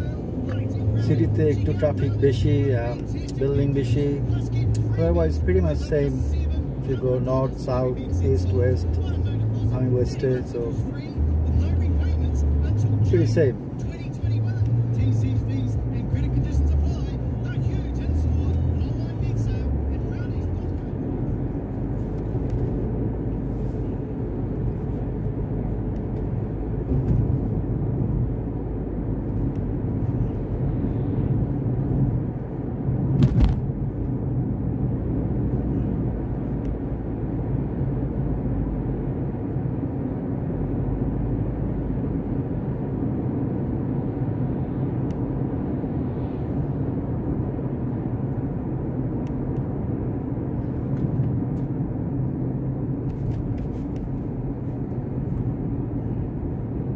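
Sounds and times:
car engine hum: 0.0 - 56.9
tyre and road rumble: 0.0 - 56.9.

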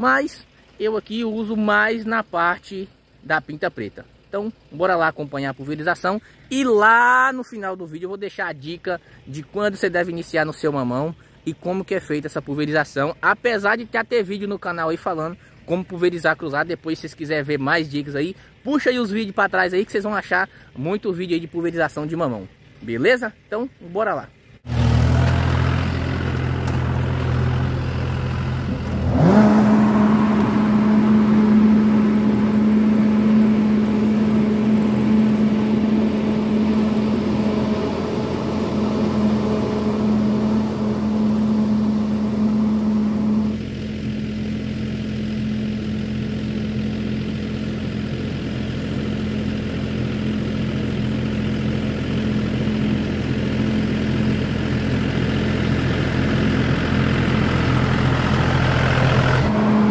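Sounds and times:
tractor diesel engine revving: 24.6 - 59.9.

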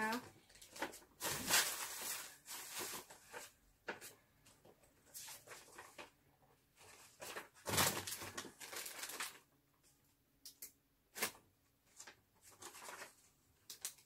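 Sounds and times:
paper rustling: 0.5 - 6.2, 6.8 - 9.5, 11.2 - 14.0.

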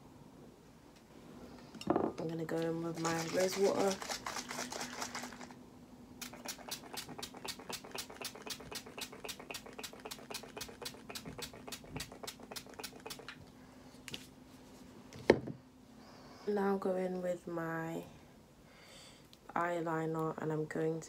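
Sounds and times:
pump spray bottle hissing: 6.2 - 13.3.

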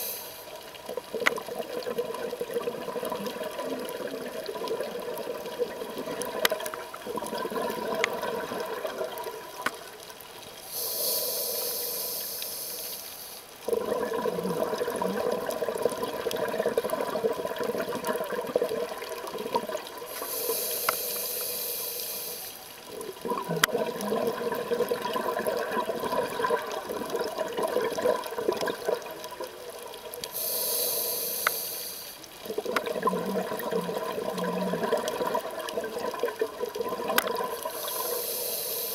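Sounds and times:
regulator inhale hiss: 0.0 - 0.7, 10.6 - 13.6, 20.1 - 22.8, 30.2 - 32.4, 37.5 - 38.9
exhaust bubbles bubbling: 0.9 - 9.6, 13.7 - 20.1, 22.9 - 30.1, 32.4 - 37.8.

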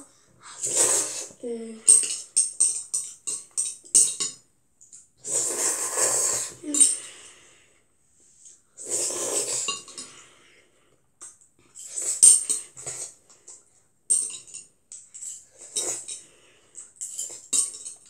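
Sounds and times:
noisy noodle slurps: 0.5 - 1.4, 5.2 - 6.6, 8.8 - 10.0, 11.8 - 13.2.

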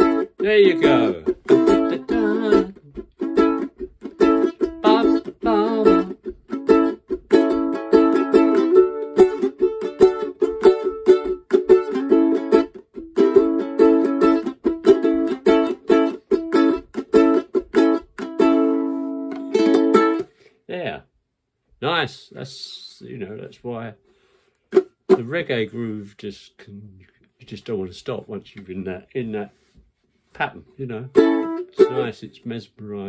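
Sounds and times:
ukulele strumming: 0.0 - 20.3, 24.7 - 25.5, 31.1 - 32.2.

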